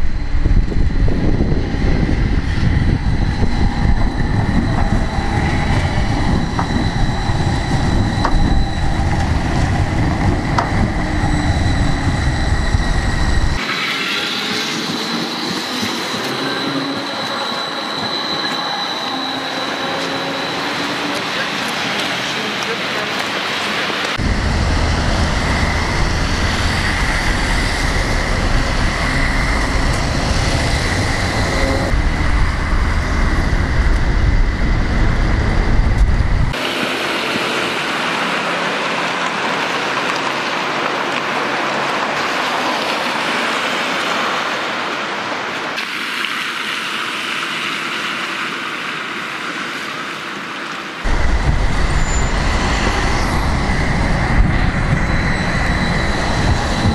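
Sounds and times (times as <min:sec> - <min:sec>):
deep rumble: 0:00.0 - 0:13.6, 0:24.2 - 0:36.6, 0:51.0 - 0:56.9
tram noise: 0:00.0 - 0:47.1, 0:50.8 - 0:56.9
steady high tone: 0:03.0 - 0:21.6, 0:24.2 - 0:36.9
traffic on wet street: 0:13.5 - 0:34.4, 0:36.0 - 0:56.9.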